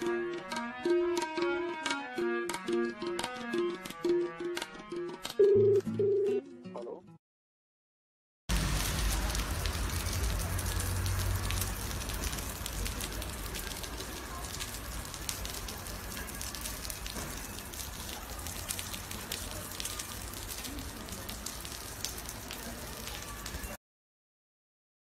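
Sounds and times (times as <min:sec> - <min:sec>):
rain falling: 0:08.5 - 0:23.8.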